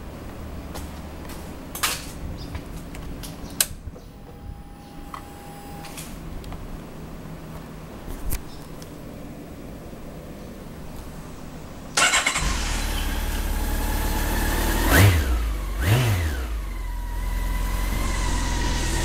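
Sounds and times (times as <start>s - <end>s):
fuel pump whine: 12.0s - 19.0s.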